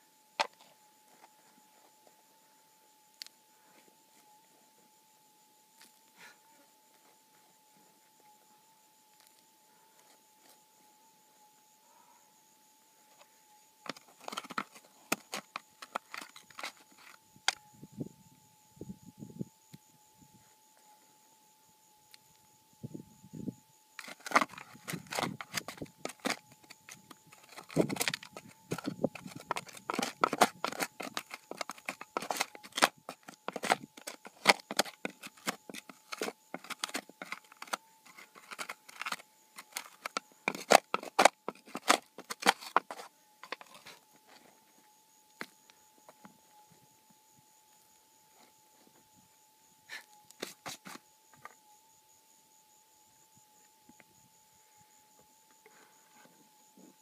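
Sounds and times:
stones and gravel clattering: 13.9s - 17.1s, 24.0s - 43.8s.

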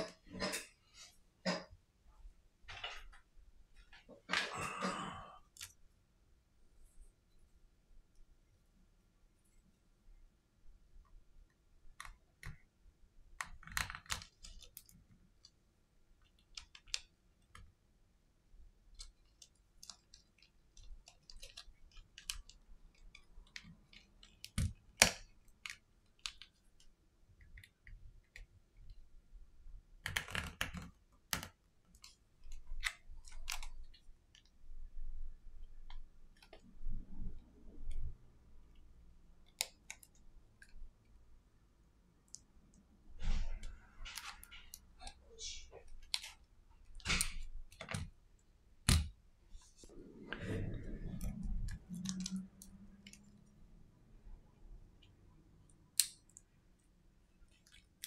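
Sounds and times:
spudger clicking and scraping: 49.6s - 53.4s.

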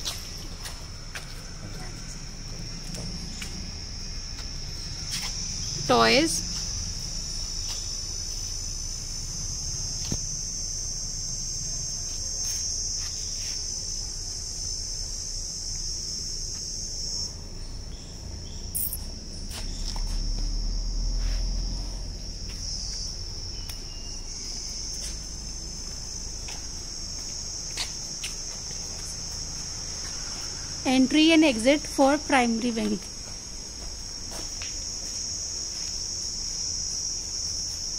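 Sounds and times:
insects droning: 0.0s - 37.9s.

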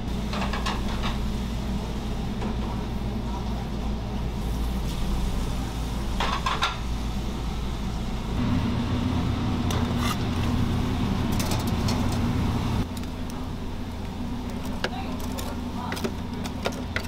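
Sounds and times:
kitchen equipment humming: 0.0s - 17.0s
metal tongs clinking and scraping: 11.3s - 12.3s.

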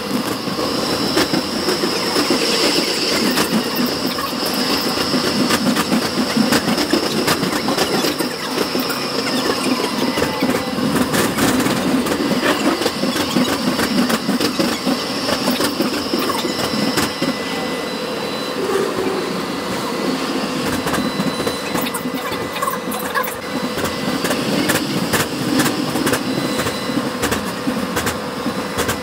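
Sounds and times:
wheels clattering on track: 0.0s - 17.4s
faint high whine: 0.0s - 28.8s
tram wheels rumbling: 0.0s - 29.0s.

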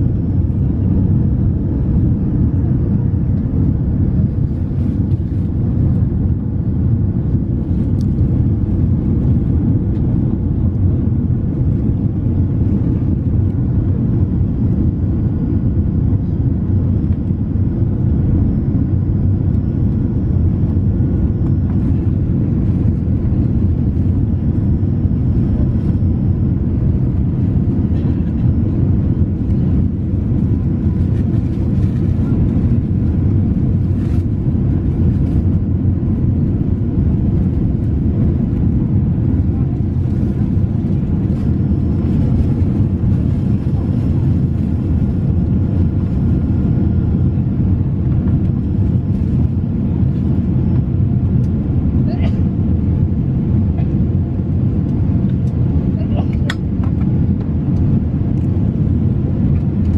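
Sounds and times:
airliner cabin engine rumble: 0.0s - 59.9s.

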